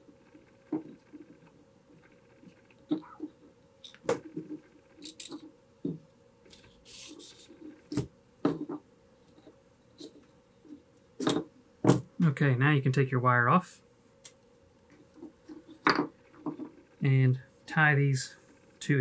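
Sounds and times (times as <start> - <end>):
wood and wire knocking on workbench: 15.8 - 16.7.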